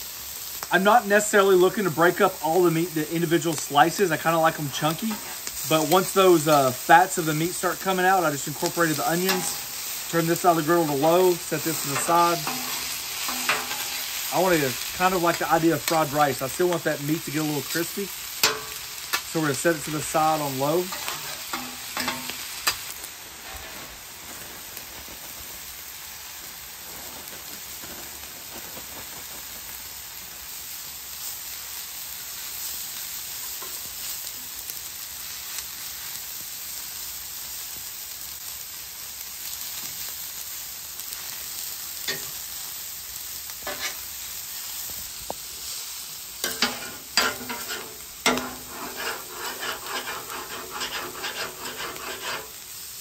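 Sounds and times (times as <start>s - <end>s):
food sizzling on griddle: 0.0s - 53.0s
metal spatulas scraping griddle: 4.8s - 6.5s, 7.8s - 16.2s, 18.4s - 23.9s, 43.6s - 44.0s, 46.4s - 52.6s.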